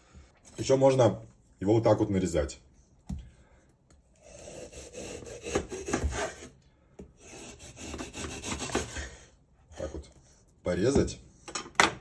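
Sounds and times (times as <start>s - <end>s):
serrated knife sawing frozen rind: 4.2s - 6.5s, 7.2s - 9.2s.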